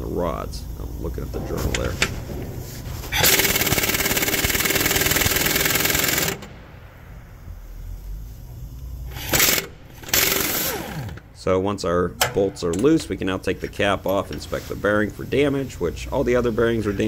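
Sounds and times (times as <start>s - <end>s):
impact wrench hammering: 1.2s - 6.7s, 9.1s - 11.2s.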